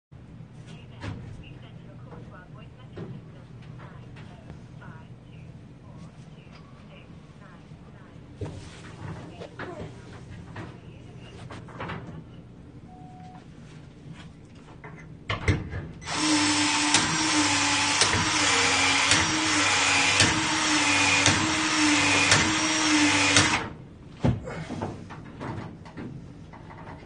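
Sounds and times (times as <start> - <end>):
tool clicking as it cycles: 16.0 - 23.7
expansion tool motor whine: 16.0 - 23.8.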